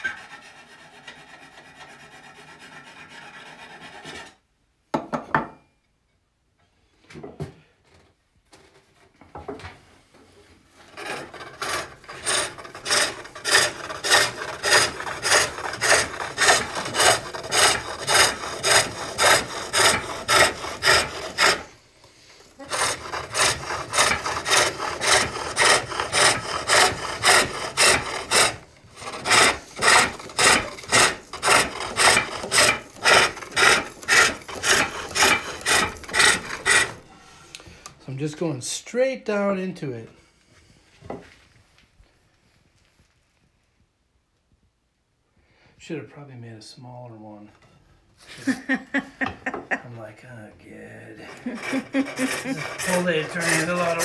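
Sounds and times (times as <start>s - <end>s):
lathe tool rasping on wood: 10.9s - 21.8s, 22.4s - 37.1s, 51.2s - 54.0s.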